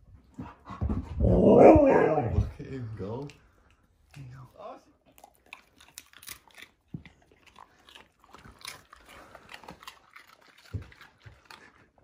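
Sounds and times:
low thump: 0.8 - 2.6
dogs scuffling and play-biting: 8.3 - 11.9.

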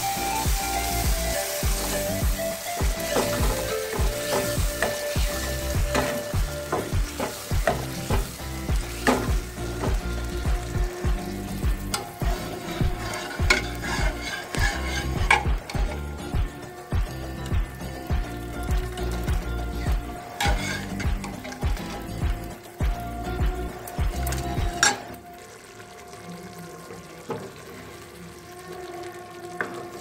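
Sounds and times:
frying hiss: 0.0 - 30.0
ladle scraping and knocking pan: 3.0 - 10.1, 11.9 - 16.1, 20.3 - 22.4.

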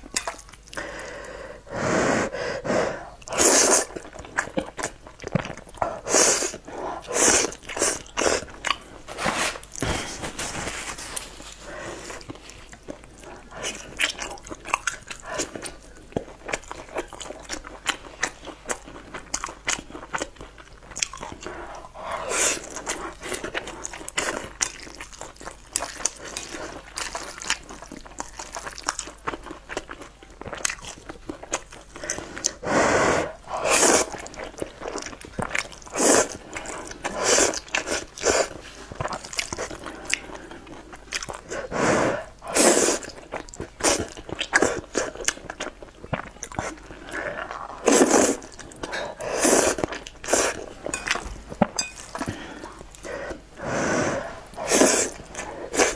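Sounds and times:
wet chewing and mouth clicks: 0.0 - 0.8, 3.2 - 8.9, 12.2 - 21.9, 22.6 - 32.6, 33.9 - 53.4
slurping noodles: 1.7 - 4.0, 35.9 - 38.6, 41.4 - 43.2, 46.6 - 50.7, 53.0 - 55.9.

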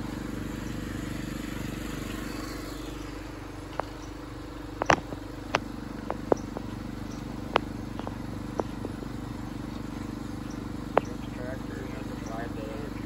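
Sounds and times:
small tractor engine idling: 0.0 - 13.0
sharp clicks: 3.7 - 9.1, 10.4 - 12.6.

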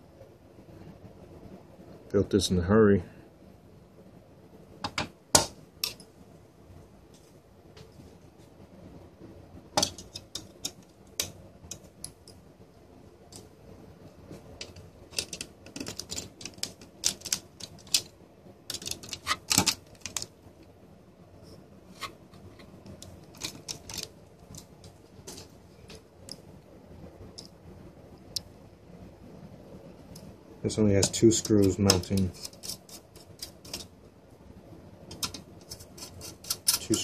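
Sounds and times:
screwdriver clicking on metal: 35.1 - 37.0.

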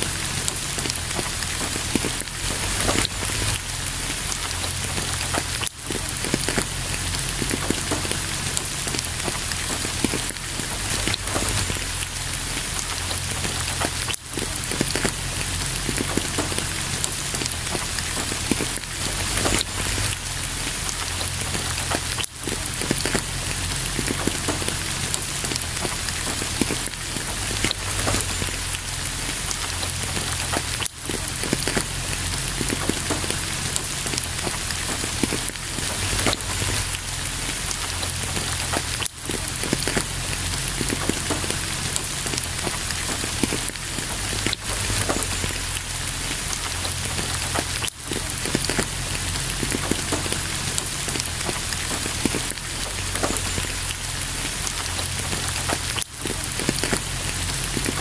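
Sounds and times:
close raindrops hitting surface: 0.0 - 58.0
steady rain: 0.0 - 58.0.

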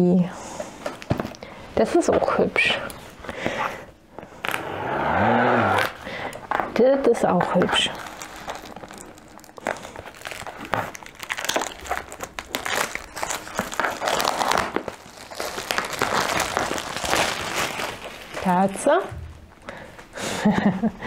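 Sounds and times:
packaging crinkling and rustling: 5.8 - 20.2.

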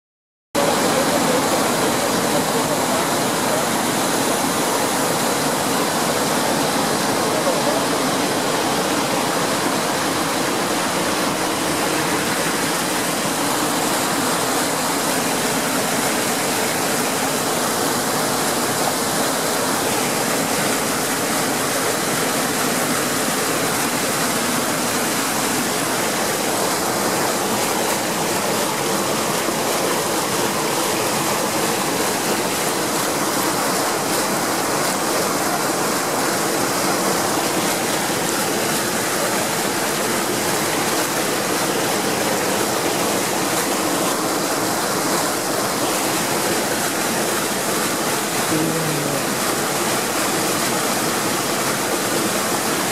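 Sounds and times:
water rushing over rocks: 0.6 - 52.9.

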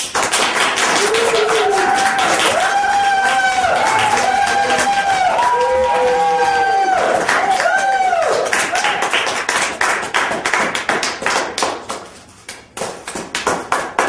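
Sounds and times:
audience applause: 0.0 - 11.7
whooping cheer: 0.8 - 9.2.

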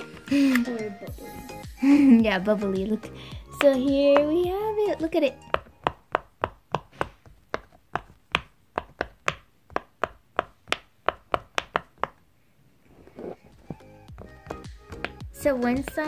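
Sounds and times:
background music: 0.0 - 6.1, 13.3 - 16.0
fidget toy bubble popping: 3.4 - 6.9.

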